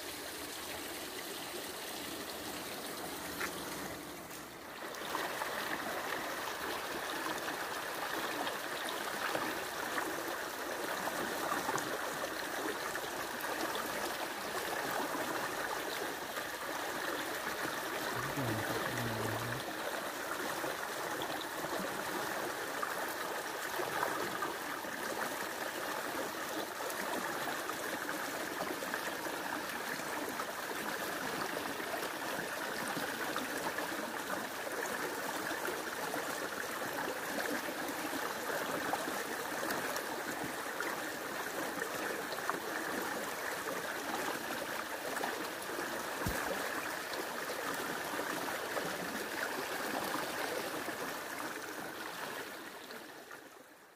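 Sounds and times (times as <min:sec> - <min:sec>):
fast river rushing: 0:17.5 - 0:19.9.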